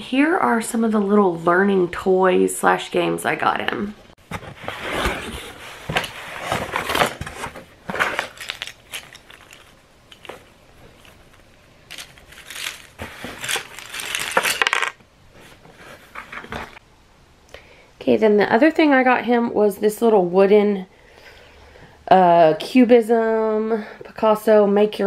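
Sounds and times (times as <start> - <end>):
cardboard box opened: 4.3 - 11.3
plastic bag crinkling: 6.9 - 15.0
wooden pieces clicking together: 11.9 - 15.0.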